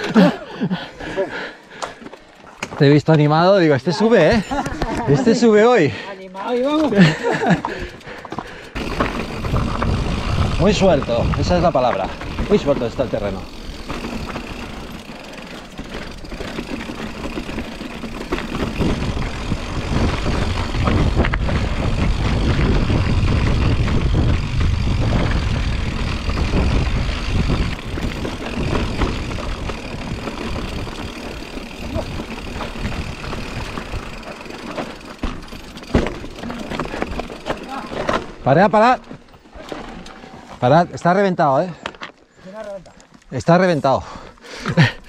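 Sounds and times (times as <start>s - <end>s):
bike rattling: 0.0s - 45.0s
tyres crunching on gravel: 6.4s - 43.9s
wind rumbling on microphone: 8.8s - 13.4s, 17.4s - 34.3s.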